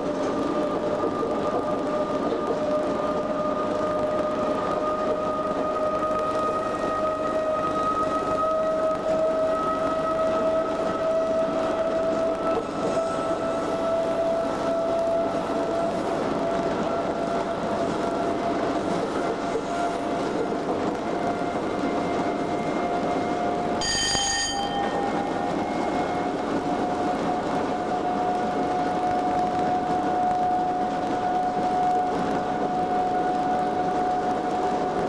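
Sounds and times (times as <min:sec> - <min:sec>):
train wheels rumbling: 0:00.0 - 0:35.0
bell ding: 0:23.8 - 0:25.1.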